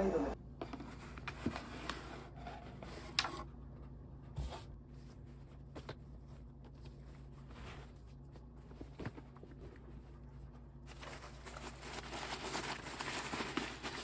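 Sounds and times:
low steady hum: 0.0s - 14.0s
soft rustling: 4.3s - 13.8s.

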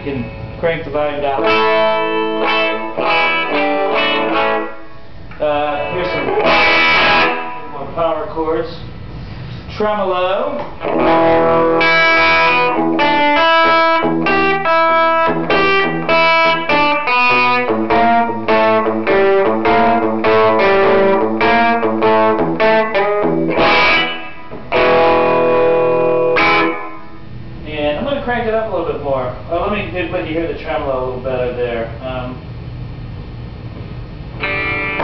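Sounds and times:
electric guitar with tremolo: 1.3s - 7.8s, 10.7s - 27.4s, 34.3s - 35.0s.

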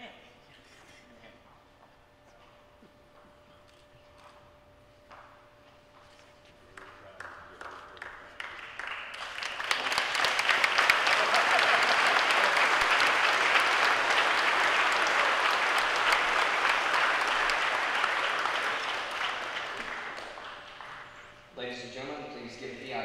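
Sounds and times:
crowd applauding: 6.8s - 21.4s.

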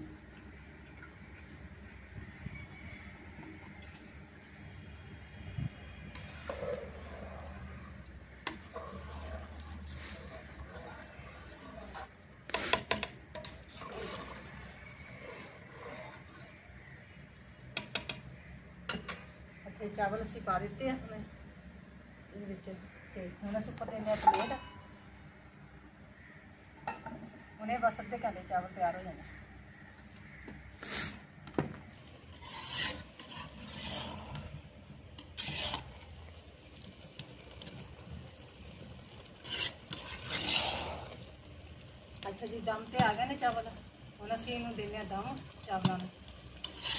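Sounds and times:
ladle stirring curry: 5.3s - 19.1s, 31.9s - 46.9s
metal skimmer scraping rice in pot: 6.2s - 16.6s, 32.3s - 34.5s, 35.2s - 36.1s, 39.4s - 41.2s, 46.6s - 46.9s
ladle clinking against metal pot: 24.2s - 24.8s.

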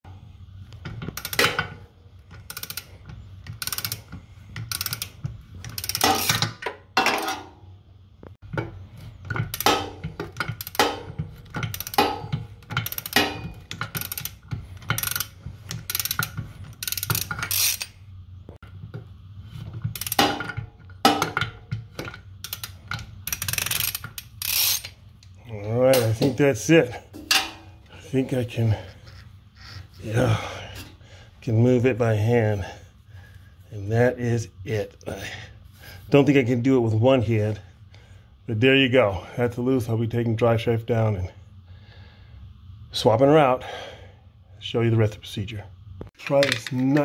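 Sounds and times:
socket wrench ratchet clicking: 0.8s - 6.6s, 9.3s - 18.0s, 19.9s - 20.2s, 22.0s - 25.0s.

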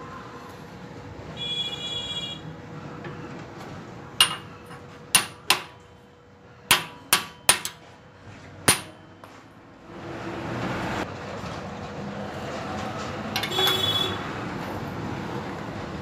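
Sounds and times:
steel pipe clinking on iron: 4.2s - 5.8s, 6.7s - 7.8s, 8.7s - 9.4s, 13.4s - 13.9s.

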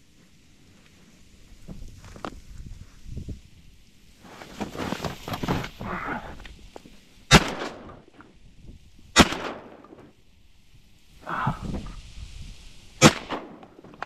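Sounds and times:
gun handling rustling: 4.2s - 7.0s
shotgun shots: 7.3s - 8.0s, 9.2s - 10.0s, 13.0s - 13.6s.

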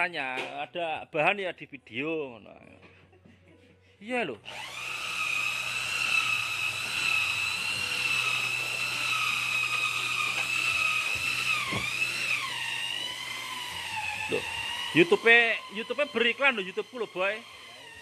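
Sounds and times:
cordless drill whining: 4.4s - 18.0s.

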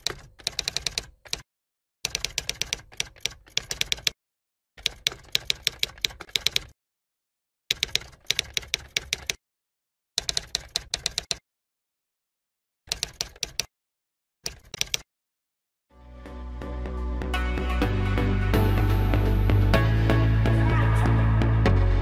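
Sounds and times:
keyboard typing clicks: 0.0s - 1.4s, 2.0s - 4.2s, 4.8s - 6.8s, 7.7s - 9.4s, 10.2s - 11.4s, 12.9s - 13.7s, 14.4s - 15.1s.

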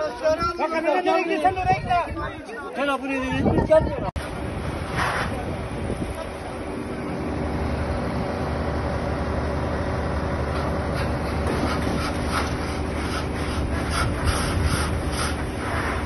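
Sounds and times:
fire truck engine hum: 4.2s - 16.0s.

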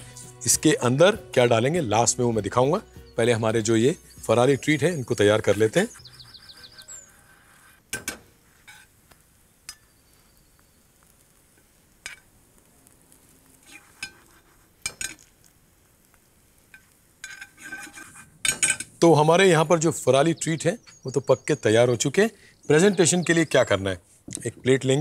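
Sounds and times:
patties sizzling in pan: 4.0s - 18.5s
metal spoon scraping pan: 4.8s - 8.9s, 13.6s - 15.3s, 16.8s - 18.9s.

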